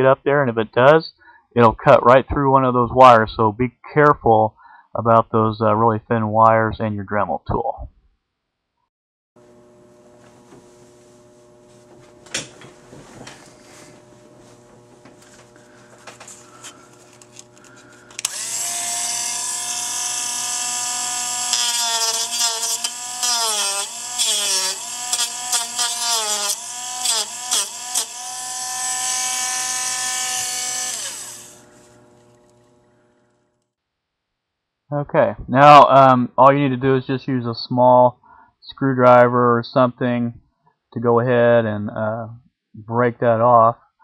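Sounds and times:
rotary tool whining: 0:09.4 - 0:33.7.

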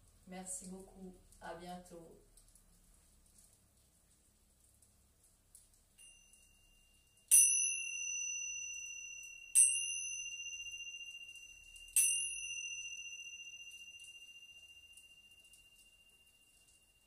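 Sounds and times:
small cymbals ringing: 0:06.0 - 0:17.0.

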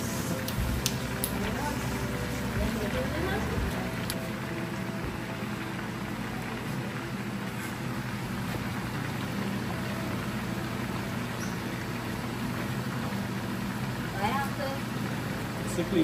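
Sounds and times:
steady low hum: 0:00.0 - 0:15.8
oil sizzling with frying chicken: 0:00.0 - 0:16.0.

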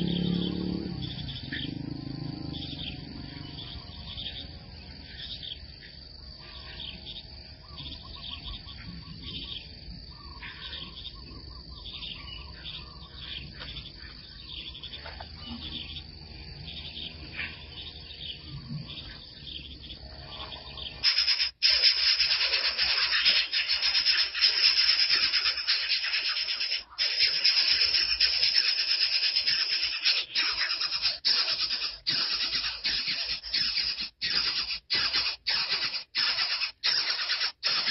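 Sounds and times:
faint insect drone: 0:00.0 - 0:37.9
small birds chirping: 0:00.0 - 0:37.9
harsh hissing noise: 0:21.0 - 0:37.9.

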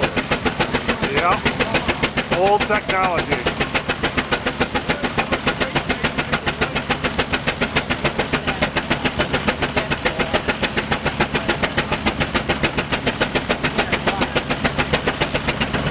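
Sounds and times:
steam engine exhaust beats: 0:00.0 - 0:15.9.

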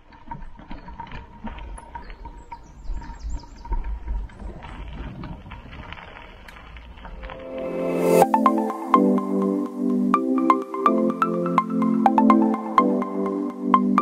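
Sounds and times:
bike tyres rolling on dirt: 0:00.0 - 0:08.2
wind rumble on microphone: 0:01.2 - 0:07.2
bird chirping: 0:01.9 - 0:04.0.

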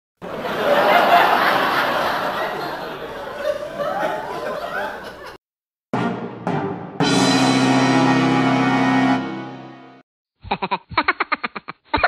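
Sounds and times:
group of people laughing: 0:00.2 - 0:05.4.

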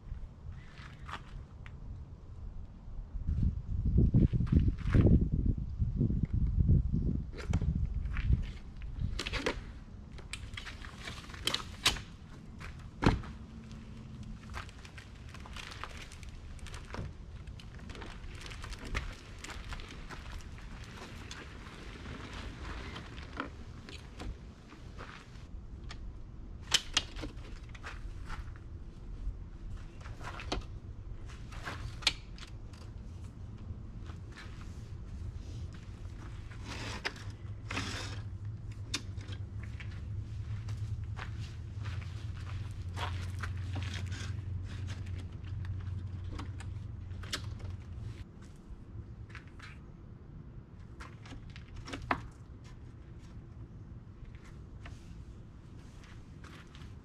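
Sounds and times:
tent fabric rustling: 0:17.6 - 0:24.2.

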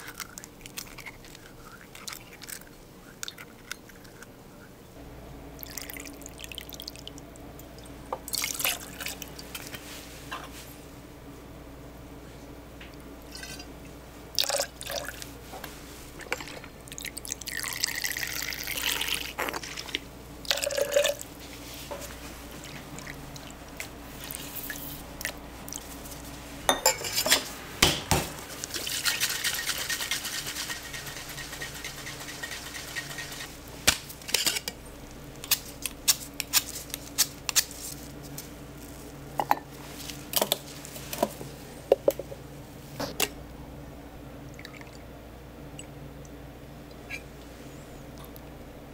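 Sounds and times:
glassware and utensils clinking: 0:26.7 - 0:27.5.

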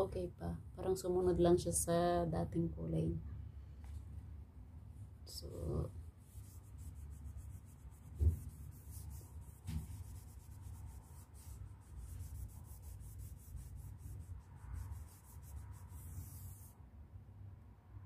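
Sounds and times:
rag scrubbing a wall: 0:06.2 - 0:16.7.

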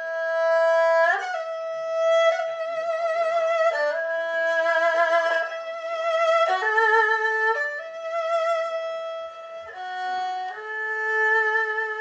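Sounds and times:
erhu melody: 0:00.0 - 0:12.0.

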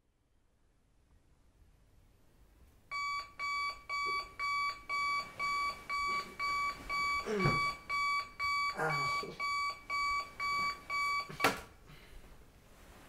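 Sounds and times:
alarm clock beeping: 0:02.9 - 0:11.6.

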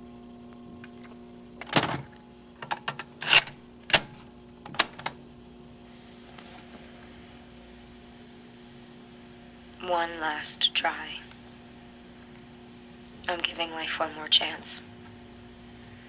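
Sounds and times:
faint tape hiss: 0:00.0 - 0:02.7
steady low hum: 0:00.0 - 0:16.0
cassette recorder clicks and clunks: 0:00.8 - 0:05.2.

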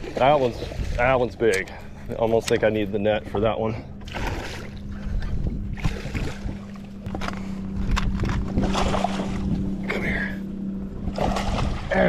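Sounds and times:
steady low hum: 0:00.0 - 0:12.0
fish splashing at surface: 0:11.1 - 0:12.0.

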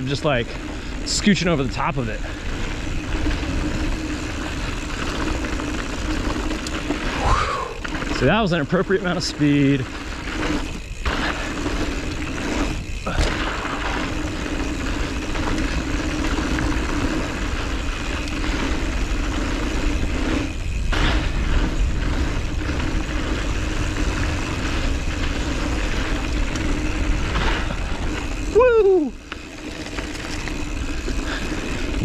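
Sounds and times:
bike tyre noise and rattle: 0:00.0 - 0:32.0
wind buffeting microphone: 0:09.5 - 0:32.0.

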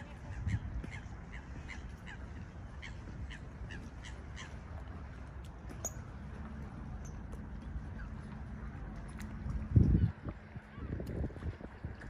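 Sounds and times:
gulls calling: 0:00.0 - 0:08.9.

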